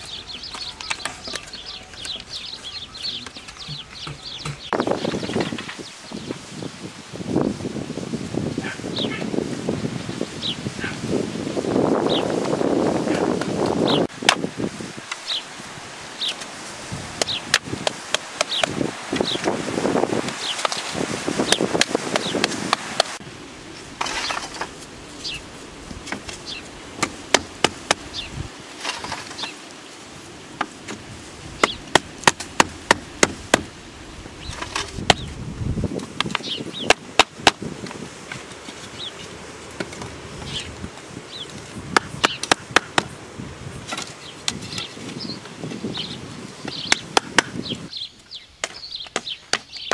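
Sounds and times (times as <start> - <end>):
wooden stakes being hammered: 3.2 - 5.6, 13.2 - 14.5, 17.2 - 19.6, 20.2 - 23.2, 27.0 - 28.2, 30.6 - 33.8, 34.5 - 35.3, 36.0 - 38.4, 41.8 - 43.2, 46.6 - 47.7, 48.6 - 49.9.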